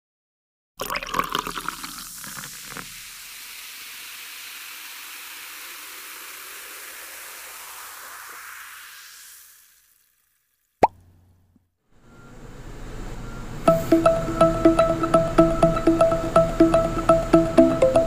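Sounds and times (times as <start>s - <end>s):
steady hiss: 1.5s - 10.5s.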